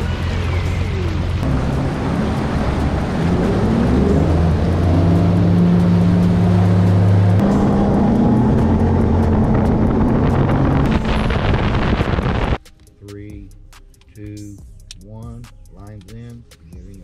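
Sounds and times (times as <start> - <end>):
boat outboard engine: 0.0 - 12.5
background music: 0.0 - 17.0
wind and water rushing: 1.1 - 6.8.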